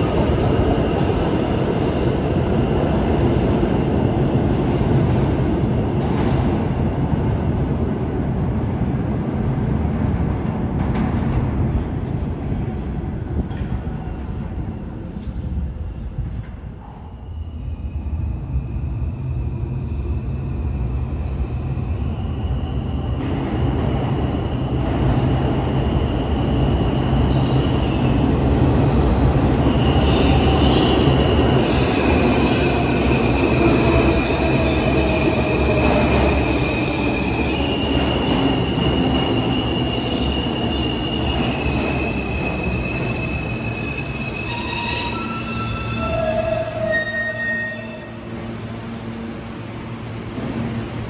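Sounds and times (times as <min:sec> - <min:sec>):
subway train rumbling: 0:00.0 - 0:51.0
high-pitched wheel squeals: 0:42.7 - 0:48.2.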